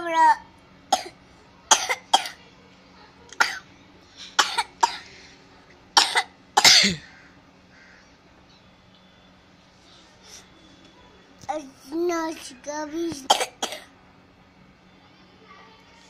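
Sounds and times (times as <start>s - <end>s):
person coughing: 6.0s - 7.1s, 13.3s - 13.9s.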